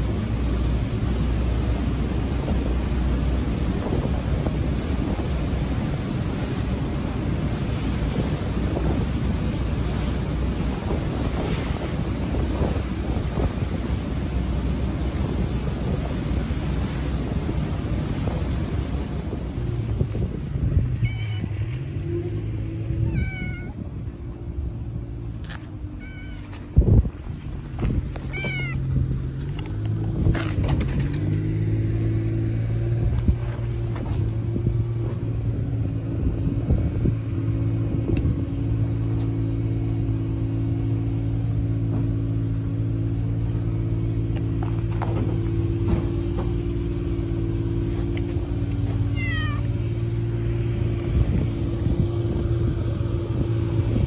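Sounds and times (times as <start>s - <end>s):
engine hum: 0.0s - 54.0s
cat meowing: 21.0s - 21.7s, 23.0s - 23.8s, 26.0s - 26.5s, 28.3s - 28.9s, 49.1s - 49.8s.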